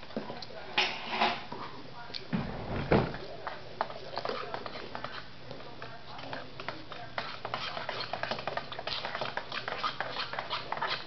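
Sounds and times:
spoon scraping in a bowl: 0:03.4 - 0:11.0.

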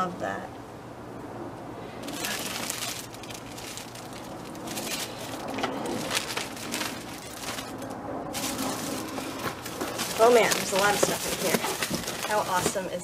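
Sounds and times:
plastic bag crinkling: 0:02.0 - 0:13.0.

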